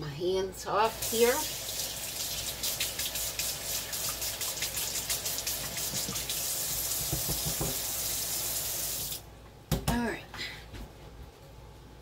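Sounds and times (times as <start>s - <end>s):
faucet running into a sink: 0.9s - 9.2s.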